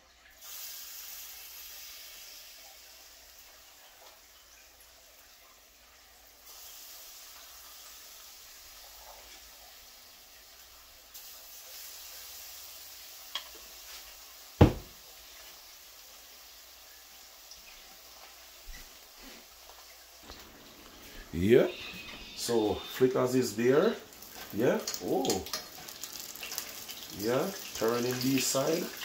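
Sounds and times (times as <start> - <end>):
oil sizzling: 0.0 - 29.0
sharp knock: 14.6 - 14.9.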